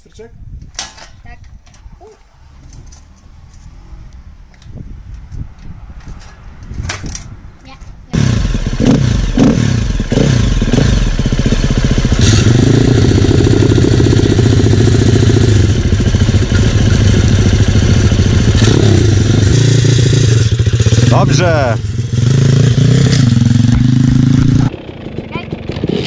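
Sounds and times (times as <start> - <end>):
motorbike engine revving: 8.1 - 26.0.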